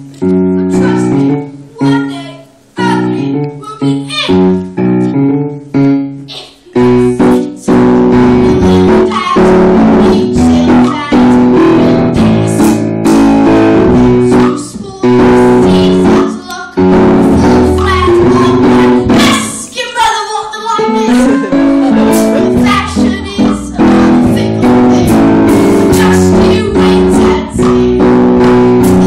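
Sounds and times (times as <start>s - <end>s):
person singing: 20.2s - 28.2s
plucked guitar-like chords: 20.8s - 29.0s.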